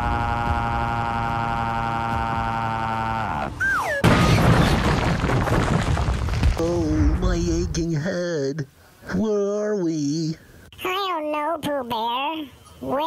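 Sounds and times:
cartoon rocket engine drone: 0.0 - 4.2
falling whistle: 3.6 - 4.4
loud rumbling crash: 4.0 - 7.9.

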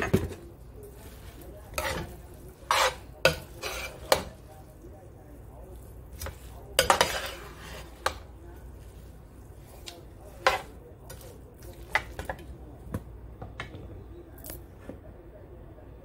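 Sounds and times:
metal spoon scraping metal pan: 1.1 - 4.4, 6.2 - 8.3, 10.3 - 11.4.

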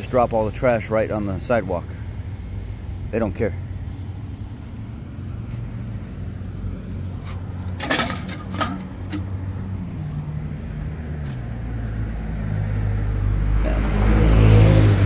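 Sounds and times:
city traffic rumble: 0.0 - 15.0
vehicle passing: 3.6 - 15.0
beer can clicking and scraping: 7.6 - 9.4.

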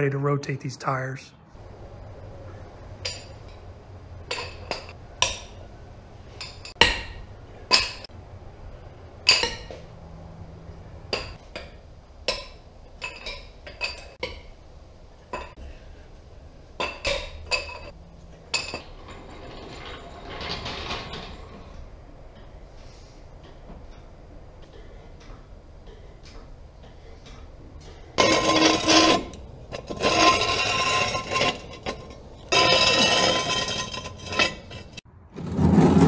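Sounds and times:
floor jack scraping: 28.2 - 36.0.

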